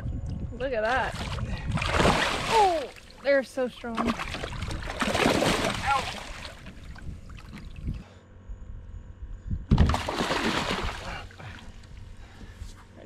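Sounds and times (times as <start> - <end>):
fish thrashing and splashing: 1.1 - 3.2, 3.8 - 7.9, 9.8 - 11.8.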